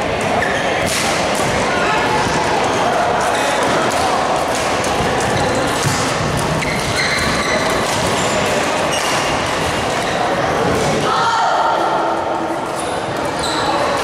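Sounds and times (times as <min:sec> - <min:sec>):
noisy hall background: 0:00.0 - 0:14.0
shoes squeaking on floor: 0:05.3 - 0:10.3, 0:12.8 - 0:14.0.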